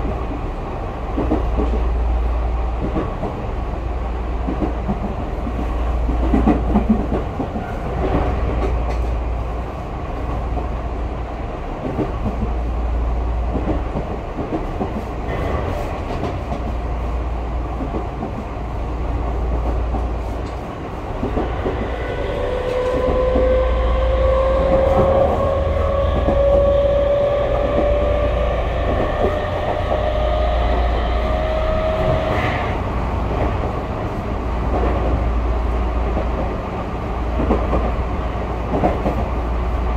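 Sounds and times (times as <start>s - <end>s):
train rumbling inside passenger car: 0.0s - 39.9s
train motor whine rising in pitch: 21.8s - 32.6s.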